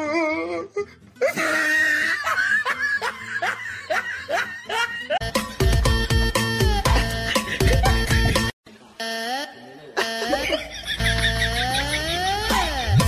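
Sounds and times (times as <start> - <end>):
person laughing: 1.2 - 5.2, 6.6 - 8.5, 10.0 - 13.0.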